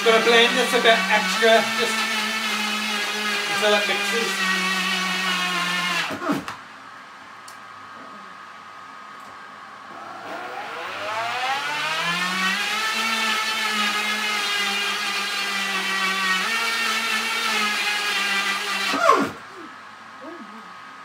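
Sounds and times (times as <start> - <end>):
blender motor whining: 0.0 - 6.6, 9.8 - 19.4.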